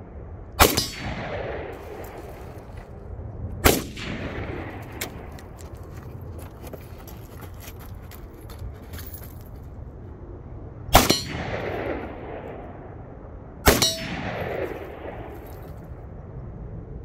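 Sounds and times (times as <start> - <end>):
steel target clang: 0.6 - 1.2, 11.0 - 11.7, 13.7 - 14.7
rifle shots echoing: 0.6 - 2.8, 3.6 - 5.6, 10.9 - 12.9, 13.6 - 15.8.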